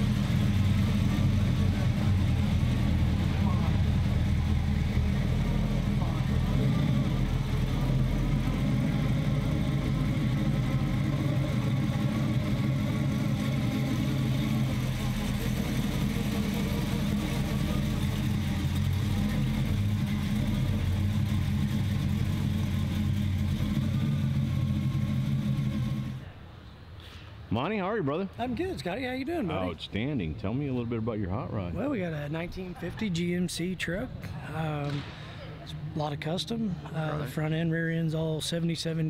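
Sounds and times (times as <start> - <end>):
truck engine idling: 0.0 - 26.7.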